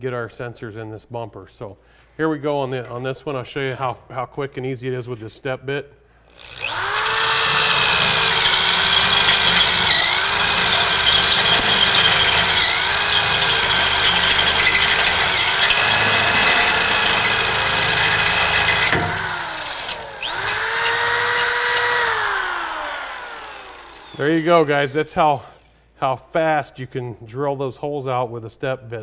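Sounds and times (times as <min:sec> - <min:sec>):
power drill whining through metal: 0:06.3 - 0:25.7.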